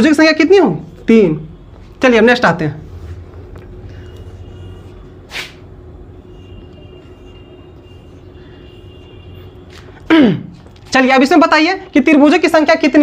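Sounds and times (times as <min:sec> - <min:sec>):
sharp scrape: 0:05.3 - 0:05.6.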